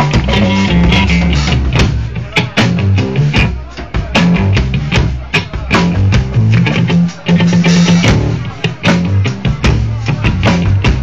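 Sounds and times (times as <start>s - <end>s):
electric guitar riff: 0.0s - 2.5s
drum hits: 0.0s - 6.7s.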